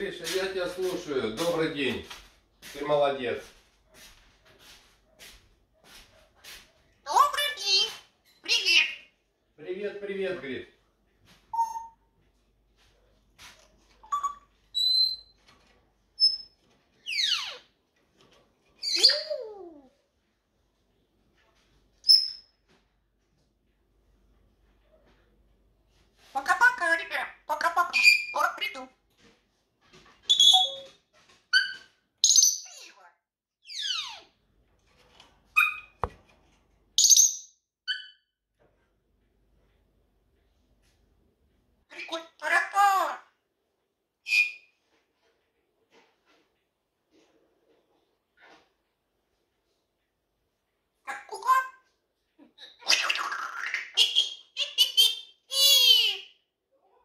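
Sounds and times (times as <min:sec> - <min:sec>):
parrot whistling and calling: 0:11.5 - 0:12.0, 0:14.0 - 0:15.3, 0:17.1 - 0:17.6, 0:30.3 - 0:30.9, 0:44.3 - 0:44.7, 0:52.6 - 0:56.3.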